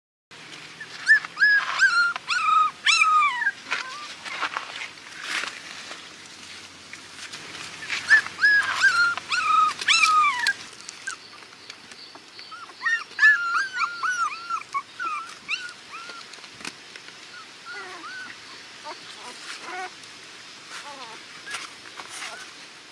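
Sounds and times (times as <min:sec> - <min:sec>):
puppies whimpering and yelping: 0:00.8 - 0:04.3, 0:07.8 - 0:11.5, 0:12.1 - 0:16.5, 0:17.2 - 0:20.0, 0:20.8 - 0:22.6.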